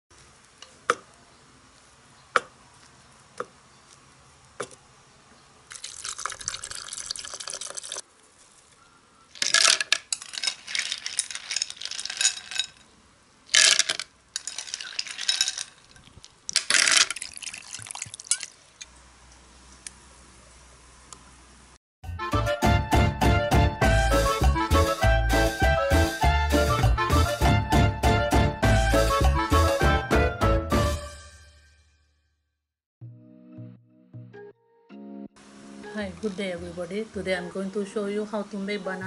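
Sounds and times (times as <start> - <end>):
liquid pouring and splashing: 5.7 - 8.1, 9.4 - 12.6, 13.5 - 18.6.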